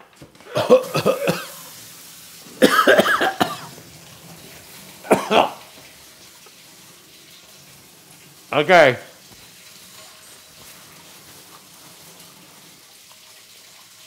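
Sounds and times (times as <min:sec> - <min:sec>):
man coughing: 0:00.5 - 0:01.6, 0:02.6 - 0:03.7, 0:05.0 - 0:05.6.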